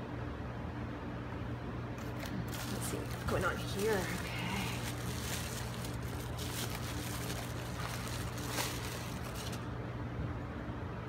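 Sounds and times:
low steady hum: 0.0s - 11.0s
bubble wrap rustling and crinkling: 2.0s - 9.7s.

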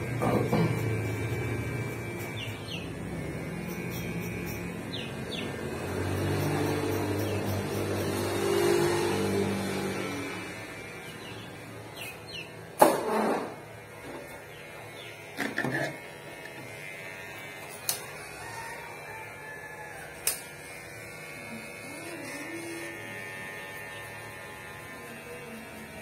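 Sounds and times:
low electric hum: 13.5s - 18.8s.

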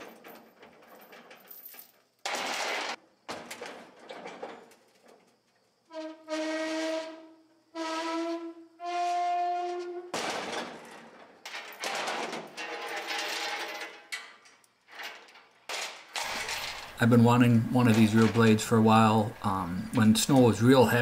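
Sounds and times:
metal squeals: 5.9s - 10.3s
metal grinding and scraping: 9.6s - 21.0s.

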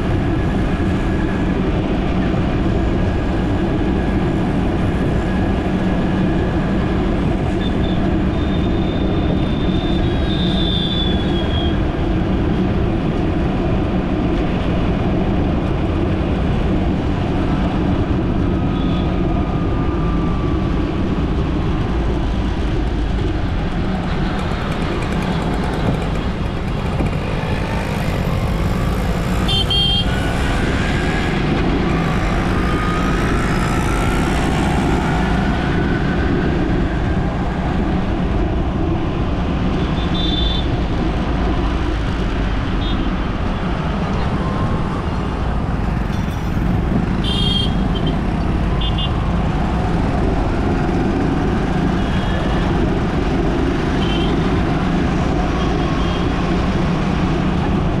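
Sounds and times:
engine and road noise: 0.0s - 58.0s
car horn beep: 47.2s - 48.1s.

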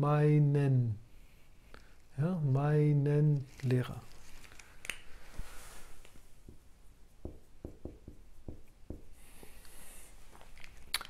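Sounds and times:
marker writing on whiteboard: 6.4s - 9.5s.

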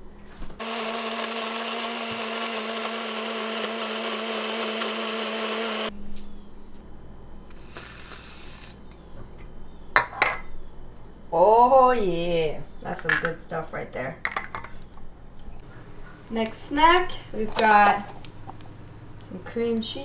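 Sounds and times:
blender motor running: 0.6s - 5.9s.

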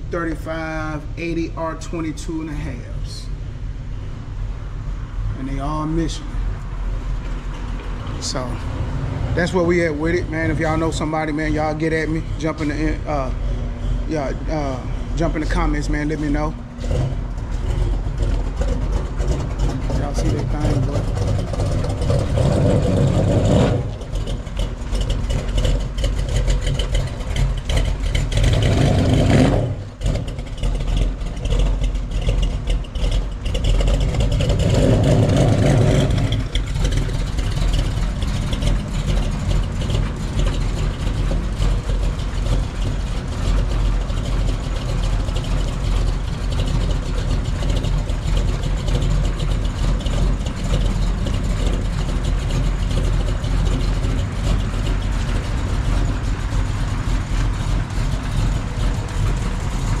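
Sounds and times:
vehicle engine idling: 0.0s - 60.0s.

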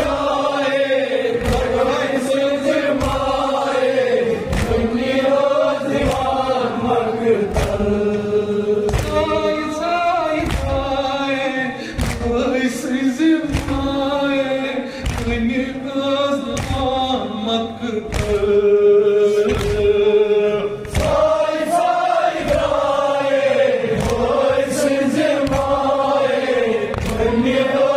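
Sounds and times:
men chanting in chorus: 0.0s - 27.9s
hands beating on chests: 10.4s - 11.0s, 13.5s - 14.0s, 25.3s - 26.1s, 26.9s - 27.6s.

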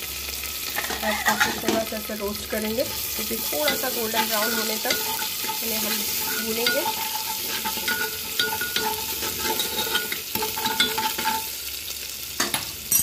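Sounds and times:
spices sizzling in hot oil: 0.0s - 13.0s
spatula scraping a pot: 0.8s - 1.8s, 2.8s - 11.5s.

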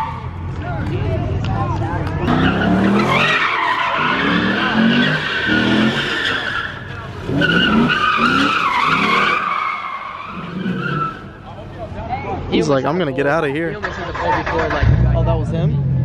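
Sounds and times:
car engine revving: 0.0s - 11.8s
tyres screeching: 2.2s - 11.7s.

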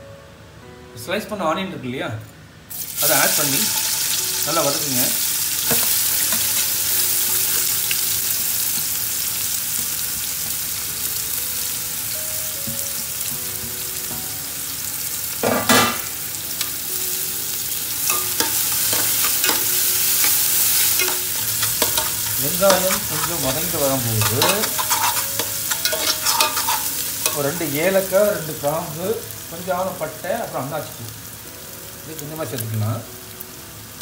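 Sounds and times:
onions sizzling in a pot: 2.7s - 34.0s
metal ladle clicking on pot: 24.2s - 27.4s.

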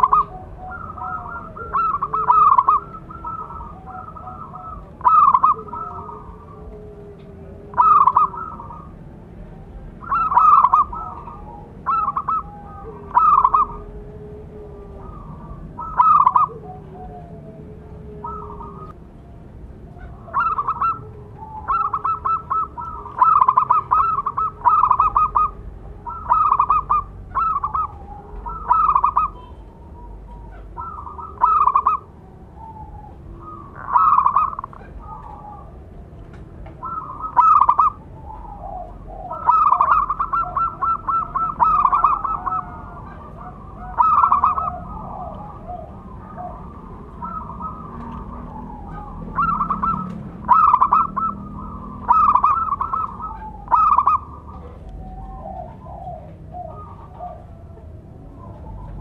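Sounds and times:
dove trilled cooing: 0.0s - 59.0s.

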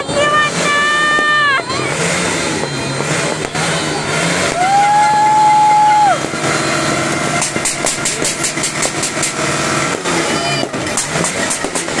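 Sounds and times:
horn blowing steady note: 0.0s - 7.9s
continuous background noise: 0.0s - 12.0s
fireworks crackling: 0.0s - 12.0s.

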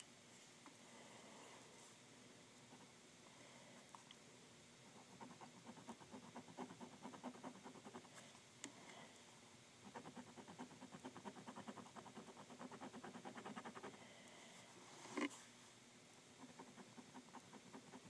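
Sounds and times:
pencil shading on paper: 5.0s - 8.1s, 9.8s - 14.0s, 16.4s - 18.0s.

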